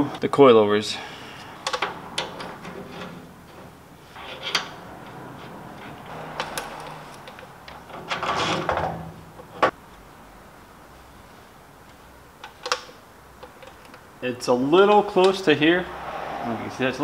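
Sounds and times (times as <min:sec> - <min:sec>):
suspension parts rattling: 0:01.6 - 0:09.8.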